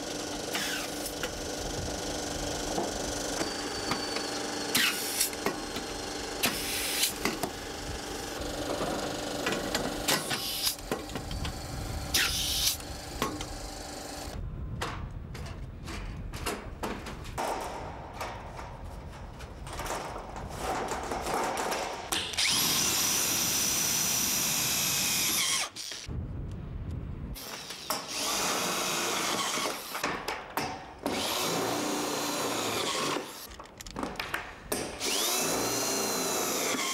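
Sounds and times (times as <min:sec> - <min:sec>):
screw gun whining: 0:00.0 - 0:14.4, 0:22.1 - 0:26.1, 0:31.1 - 0:34.0, 0:35.0 - 0:36.9.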